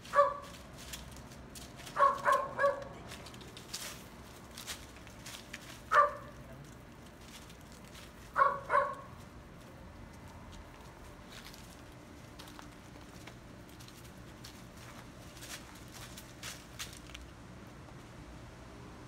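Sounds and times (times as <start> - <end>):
dog barking high-pitched: 0.1 - 0.5, 1.9 - 2.9, 5.9 - 6.3, 8.4 - 9.2.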